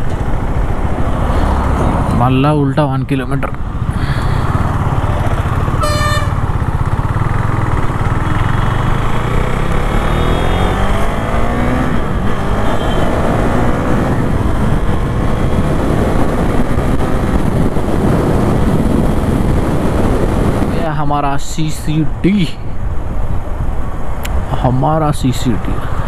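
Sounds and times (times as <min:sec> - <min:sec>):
wind rush on helmet: 0:00.0 - 0:02.6, 0:03.4 - 0:20.9, 0:22.1 - 0:24.6
motorcycle accelerating through gears: 0:03.7 - 0:20.8
short horn toot: 0:05.8 - 0:06.4.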